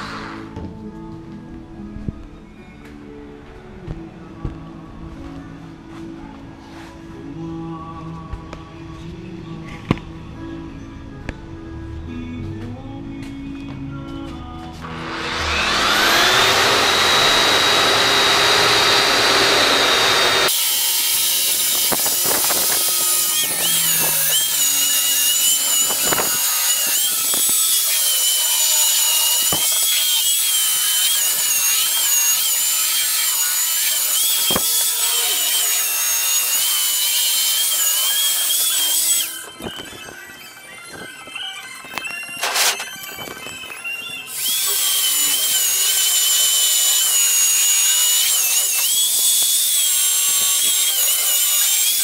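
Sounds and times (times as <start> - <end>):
electric power tool whining: 0.0 - 0.6, 14.8 - 52.0.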